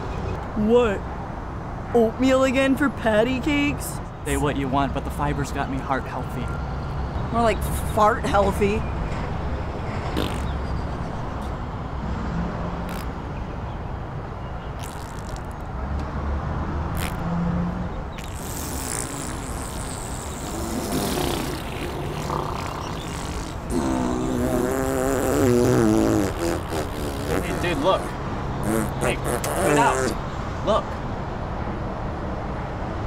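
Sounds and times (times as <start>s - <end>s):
road traffic rumble: 0.0s - 33.0s
long wavering fart: 10.1s - 10.7s, 12.8s - 13.2s, 14.8s - 15.6s, 16.9s - 17.3s, 18.2s - 30.2s.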